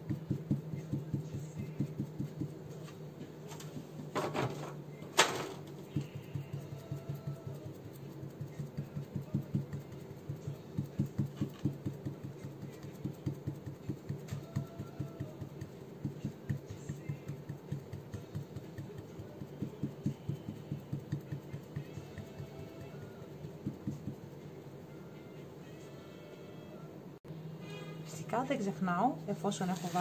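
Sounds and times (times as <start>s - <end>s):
sponge dull tapping: 0.0s - 2.6s, 5.9s - 24.3s
steady low hum: 0.0s - 30.0s.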